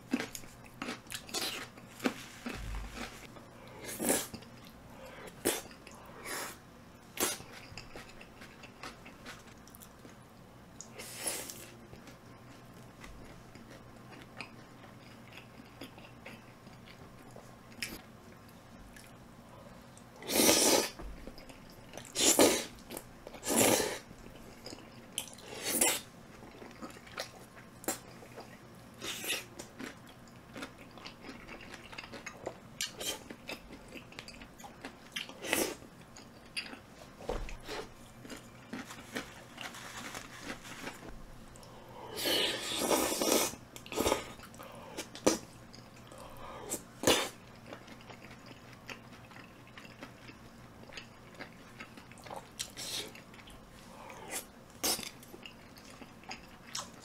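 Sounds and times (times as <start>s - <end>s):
chewing and biting food: 0.0s - 3.4s, 7.2s - 10.2s, 11.5s - 19.2s, 21.2s - 36.9s, 37.5s - 41.7s, 47.0s - 53.6s, 54.8s - 57.0s.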